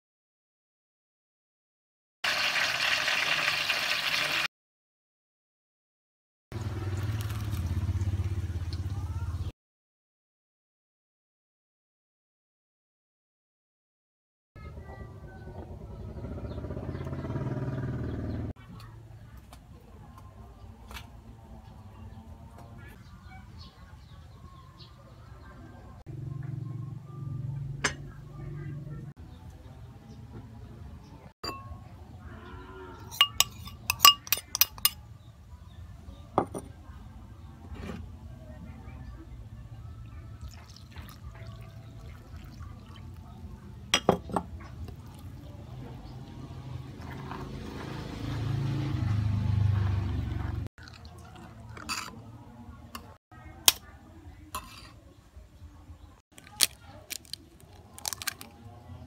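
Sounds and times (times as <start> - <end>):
metal spoon clinking ceramic bowl: 31.5 - 31.8, 33.1 - 35.0, 51.8 - 52.2, 54.6 - 55.0.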